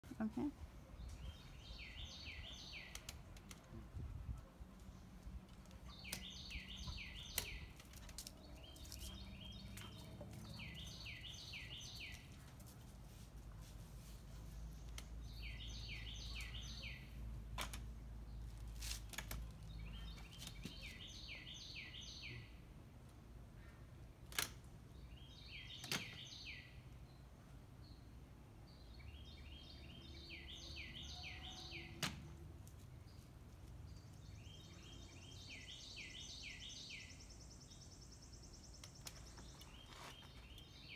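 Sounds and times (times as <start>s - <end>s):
songbird singing whistled notes: 5.9s - 7.8s, 15.3s - 17.2s, 19.8s - 22.5s, 28.9s - 32.0s, 34.0s - 40.9s.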